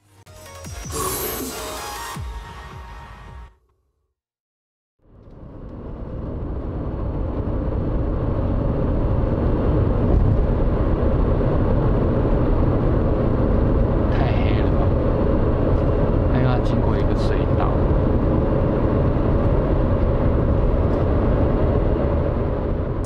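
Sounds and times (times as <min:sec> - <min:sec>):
car tyre road rumble: 0:05.0 - 0:23.0.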